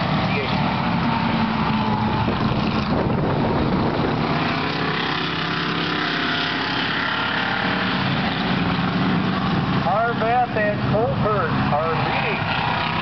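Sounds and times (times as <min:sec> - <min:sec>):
race car engines: 0:00.0 - 0:13.0.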